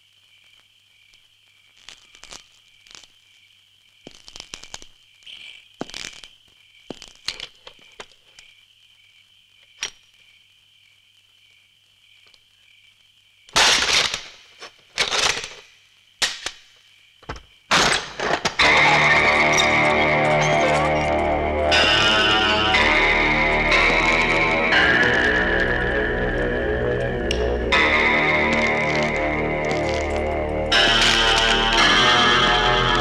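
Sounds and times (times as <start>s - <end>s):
crickets chirring: 0.0s - 33.0s
loud harsh crashes: 17.7s - 33.0s.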